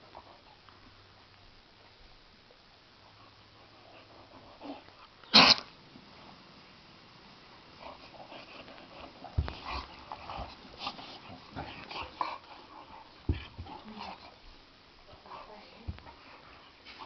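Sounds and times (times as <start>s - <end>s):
dog vocal burst: 5.2s - 5.7s
dogs scuffling and mouth noises: 7.6s - 17.0s.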